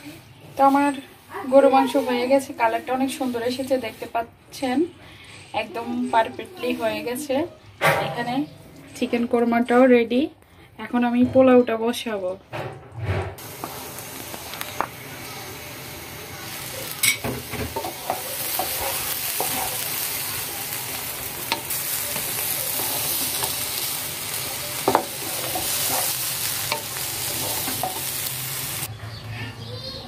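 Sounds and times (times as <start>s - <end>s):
rice sizzling in oil: 0.0s - 4.7s, 13.4s - 28.9s
spatula stirring rice: 16.5s - 28.9s.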